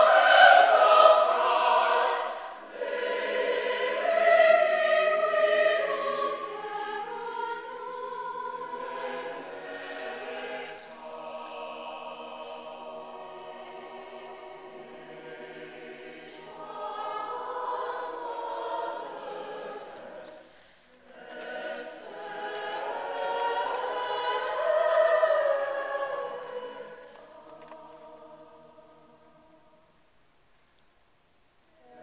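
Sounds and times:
choir singing unaccompanied: 0:00.0 - 0:30.0, 0:31.8 - 0:32.0.

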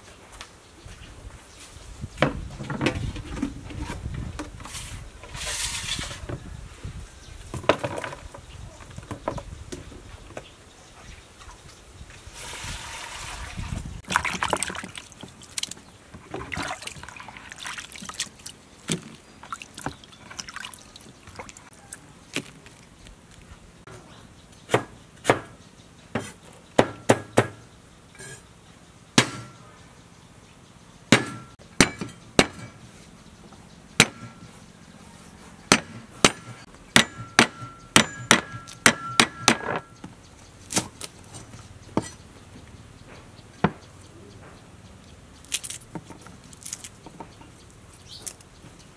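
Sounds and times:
cleaver chopping on wooden board: 0:24.7 - 0:25.6, 0:26.2 - 0:27.6, 0:29.2 - 0:29.5, 0:31.1 - 0:32.7, 0:35.7 - 0:39.9.

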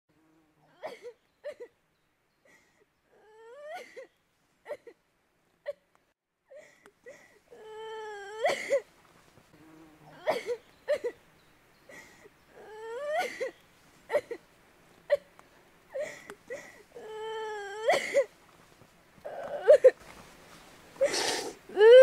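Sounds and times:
woman crying: 0:03.1 - 0:04.1, 0:06.5 - 0:08.8, 0:12.0 - 0:13.5, 0:15.9 - 0:18.3, 0:19.3 - 0:20.0, 0:21.7 - 0:22.0.

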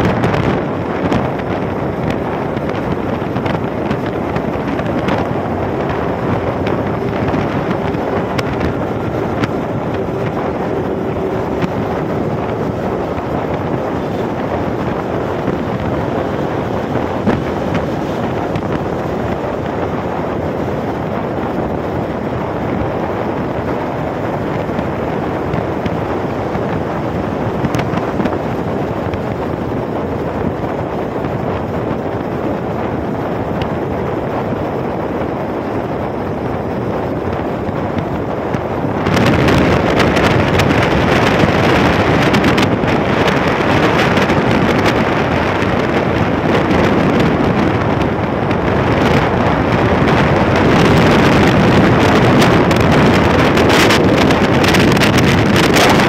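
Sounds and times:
road noise: 0:00.0 - 0:56.0
wind roaring over microphone: 0:00.0 - 0:56.0.

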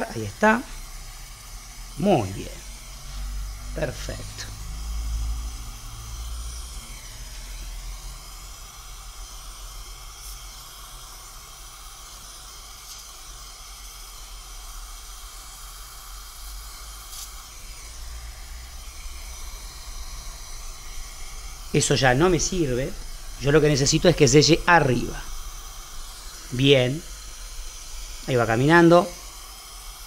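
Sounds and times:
gas torch flame hissing: 0:00.0 - 0:30.0.

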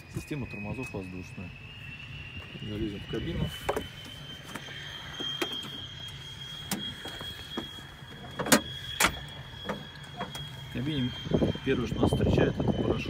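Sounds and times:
low hum: 0:00.0 - 0:13.0
thin high whine: 0:00.0 - 0:13.0.

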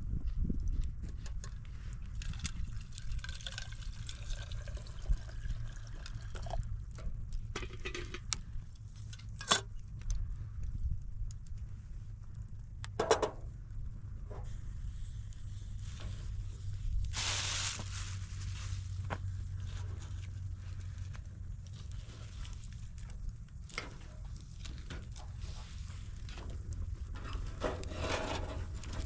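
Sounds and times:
steady low rumble: 0:00.0 - 0:29.0
wood fire crackling: 0:13.5 - 0:29.0
loud hiss: 0:17.1 - 0:18.0.

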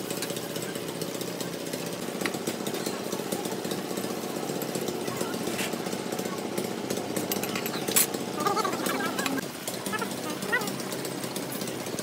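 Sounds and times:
machine running with pulsing rattle: 0:00.0 - 0:12.0
sharp metal clinks of tools: 0:07.2 - 0:08.2.

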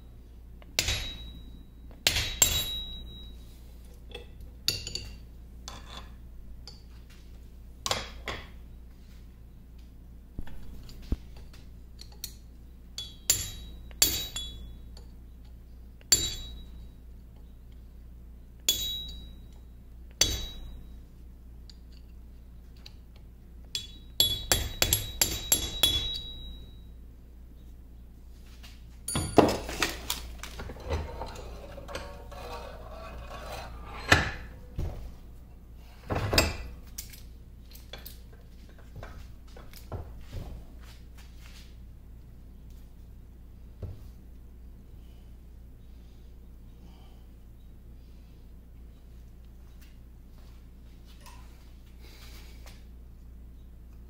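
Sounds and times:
hammer striking metal punch: 0:00.8 - 0:03.3, 0:13.0 - 0:14.7, 0:16.1 - 0:16.7, 0:18.7 - 0:19.3, 0:20.2 - 0:20.8, 0:23.8 - 0:26.5
clattering and rubbing: 0:29.5 - 0:35.3.

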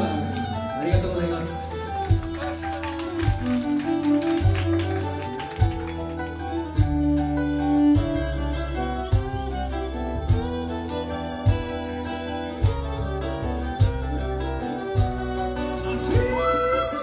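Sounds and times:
acoustic guitar: 0:00.0 - 0:17.0
keyboard: 0:00.0 - 0:17.0
low bass notes: 0:00.0 - 0:17.0
violin: 0:00.0 - 0:17.0.

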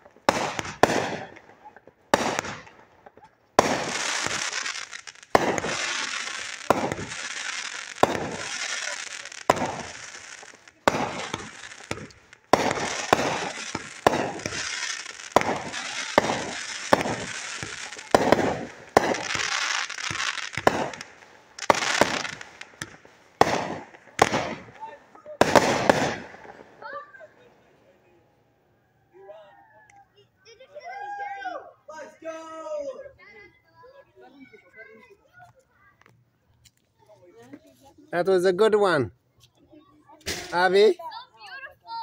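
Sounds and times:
fireworks bangs: 0:00.0 - 0:27.0, 0:40.2 - 0:41.0
fireworks crackling: 0:00.0 - 0:27.7, 0:40.1 - 0:41.3.

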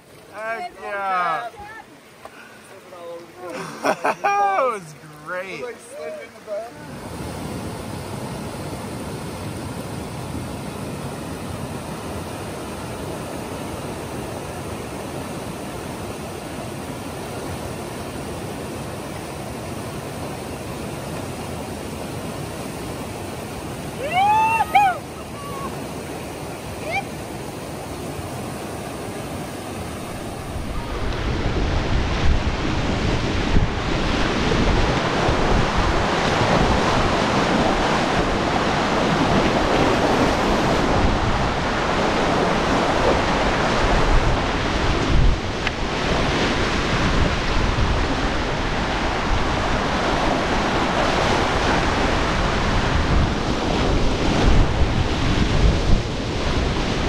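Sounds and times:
rushing river water: 0:00.0 - 0:57.0
wind buffeting microphone: 0:29.8 - 0:57.0.

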